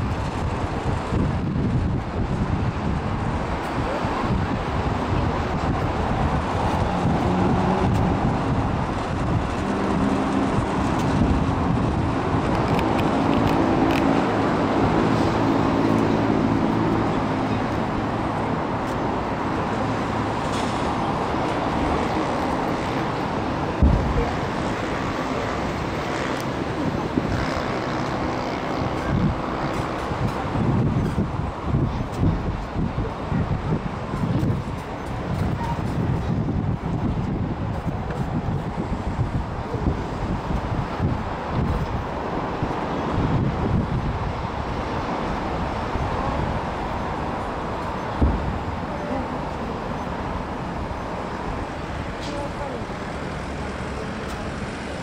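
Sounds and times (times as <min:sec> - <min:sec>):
crowd voices: 0:45.2 - 0:55.0.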